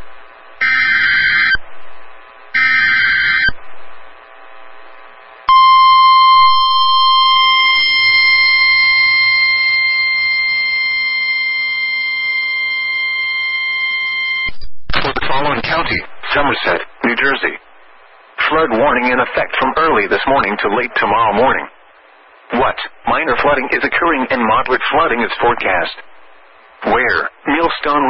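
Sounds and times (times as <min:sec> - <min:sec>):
steady warning alarm tone: 0:00.6 - 0:01.6, 0:02.5 - 0:03.6, 0:05.5 - 0:14.5
digital header tones: 0:02.5 - 0:03.6, 0:05.5 - 0:14.5.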